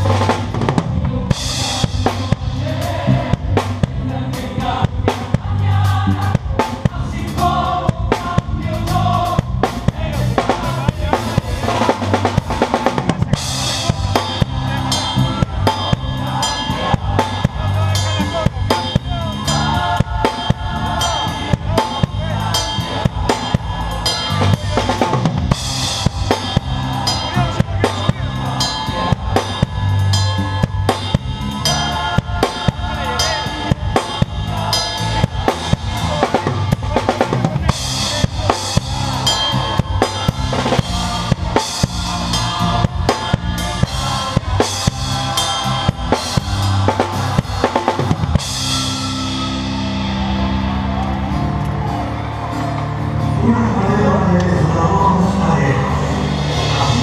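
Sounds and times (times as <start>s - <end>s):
band playing: 0.0s - 57.0s
drum kit playing: 0.0s - 57.0s
cymbal ringing: 13.4s - 37.0s, 37.6s - 50.7s.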